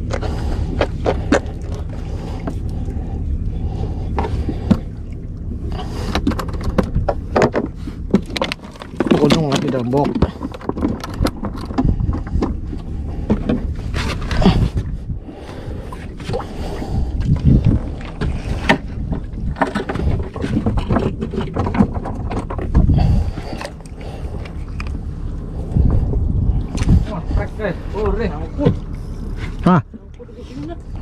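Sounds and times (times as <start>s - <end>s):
boat low rumble: 0.0s - 31.0s
knocks and clatter: 6.1s - 12.6s, 17.7s - 23.1s
wind buffeting microphone: 9.2s - 29.3s.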